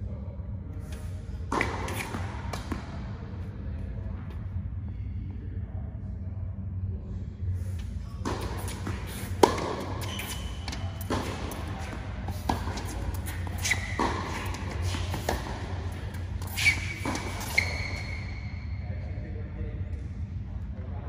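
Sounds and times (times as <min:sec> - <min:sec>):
steady low hum: 0:00.0 - 0:21.0
tennis ball bounces: 0:01.5 - 0:03.0, 0:08.2 - 0:18.3
tennis racket strikes: 0:08.2 - 0:18.3
shoes squeaking on court: 0:08.2 - 0:18.7.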